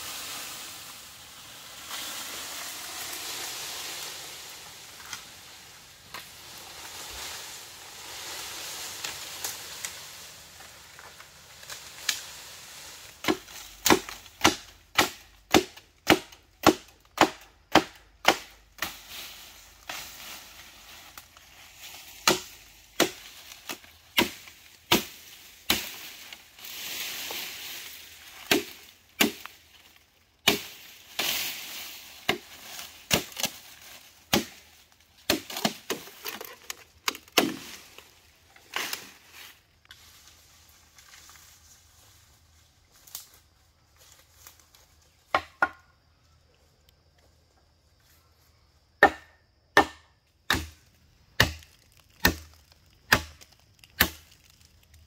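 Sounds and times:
machete chopping bamboo: 0:13.2 - 0:19.0, 0:22.1 - 0:26.4, 0:28.3 - 0:29.8, 0:30.4 - 0:31.6, 0:32.2 - 0:37.9, 0:49.0 - 0:54.6.

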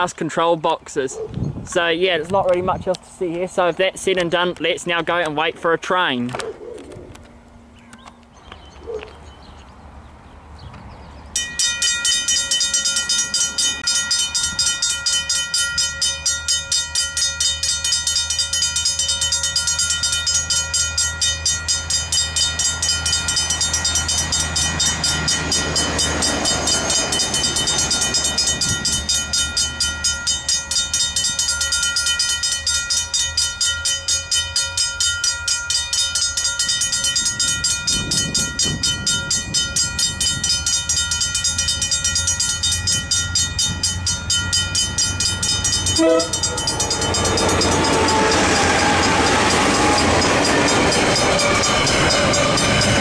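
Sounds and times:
level-crossing bells ringing: 0:11.4 - 0:53.0
truck passing: 0:21.8 - 0:30.8, 0:45.0 - 0:53.0.

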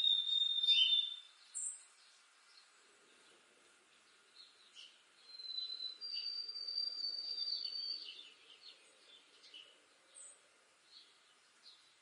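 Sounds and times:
sparrow whistled song: 0:00.0 - 0:01.9, 0:04.7 - 0:08.8
faint bird chirps: 0:00.0 - 0:03.4, 0:04.0 - 0:12.0.

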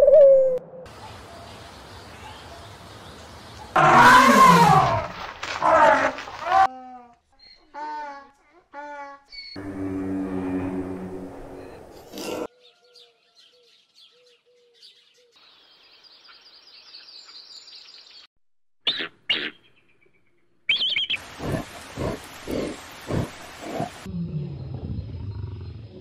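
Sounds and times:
small birds chirping: 0:00.9 - 0:03.8, 0:12.5 - 0:18.3, 0:18.9 - 0:24.1.

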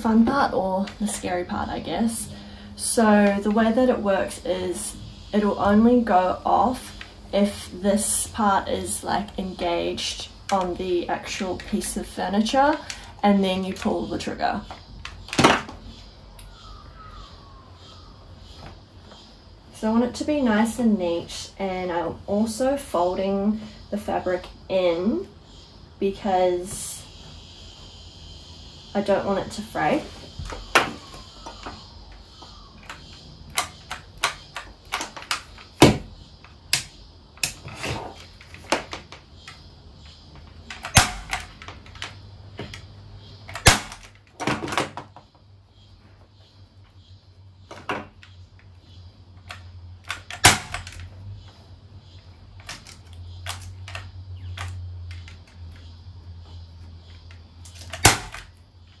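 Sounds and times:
electric staple gun firing: 0:50.2 - 0:51.0, 0:57.7 - 0:58.4.

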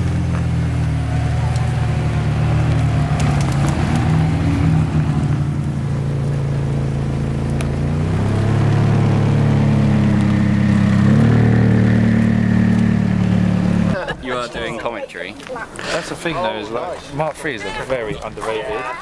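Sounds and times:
sports car engines at low revs: 0:00.0 - 0:14.0.

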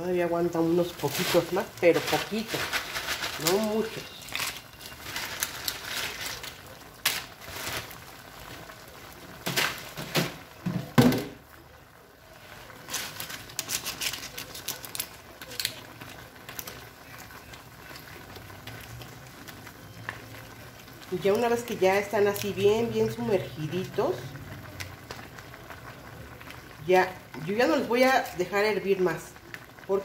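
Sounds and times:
wooden spoon crunching tortilla chips: 0:00.8 - 0:10.0, 0:12.6 - 0:21.6.

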